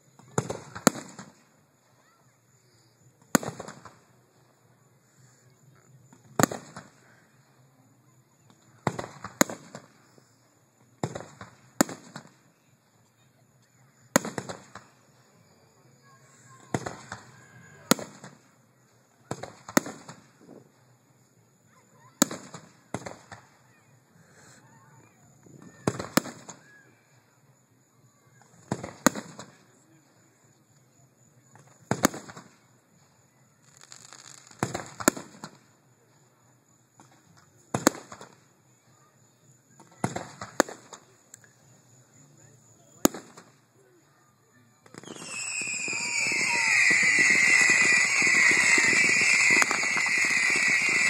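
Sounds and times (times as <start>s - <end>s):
fireworks shells bursting: 44.9s - 51.0s.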